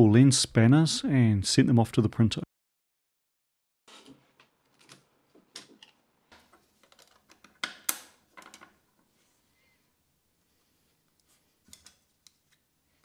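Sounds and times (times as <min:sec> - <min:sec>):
plastic parts clicking and knocking: 0:04.0 - 0:08.8.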